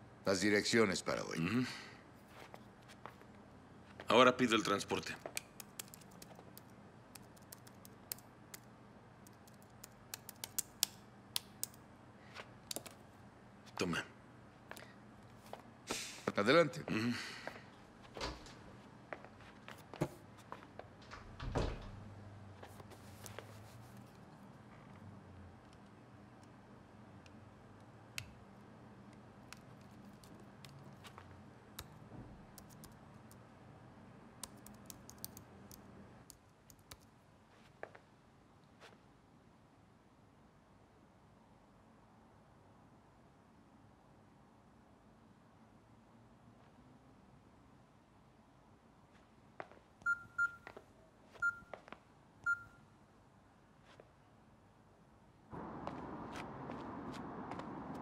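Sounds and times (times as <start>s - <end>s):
laptop keyboard typing: 5.3s - 8.7s, 9.3s - 11.8s, 32.6s - 33.4s, 34.4s - 37.1s.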